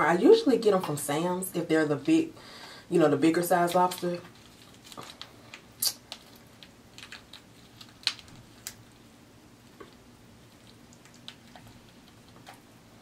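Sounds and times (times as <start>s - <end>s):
lobster shell cracking: 4.3s - 9.0s, 9.7s - 12.6s.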